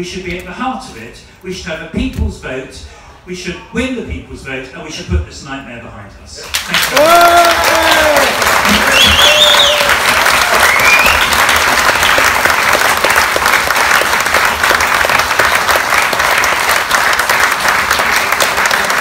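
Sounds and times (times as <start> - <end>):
crowd applauding: 6.5 - 19.0.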